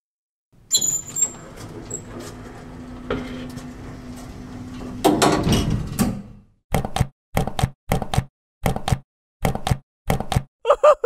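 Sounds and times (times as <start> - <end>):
elevator doors sliding shut: 0.6 - 6.4
low hum and rattle: 0.8 - 6.4.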